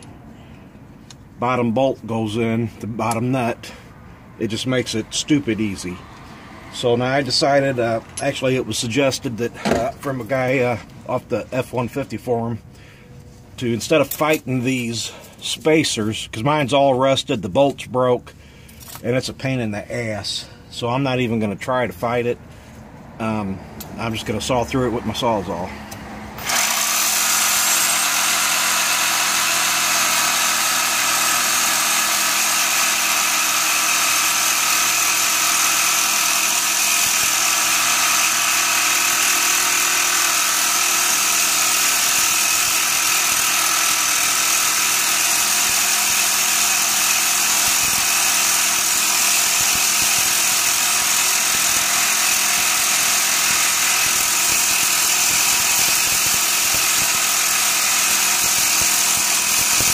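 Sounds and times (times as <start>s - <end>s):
reciprocating saw cutting bolt: 25.9s - 59.9s.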